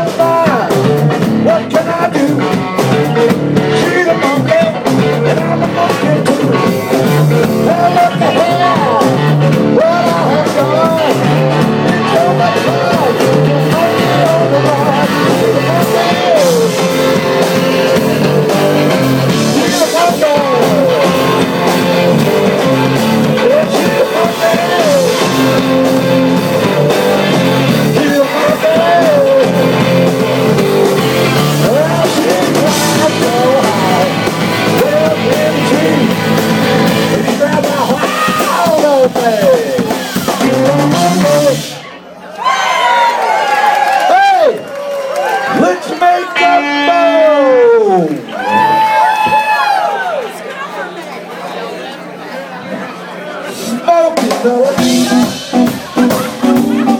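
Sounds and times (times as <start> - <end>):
gliding guitar or vocal lines: 0.0 - 41.8
electric guitar: 0.0 - 41.9, 54.2 - 56.9
drum kit playing: 0.0 - 42.0, 53.6 - 56.9.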